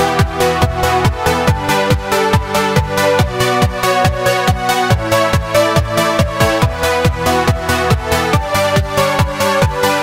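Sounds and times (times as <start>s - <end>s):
held synth chords: 0.0s - 7.8s
kick drum: 0.1s - 9.8s.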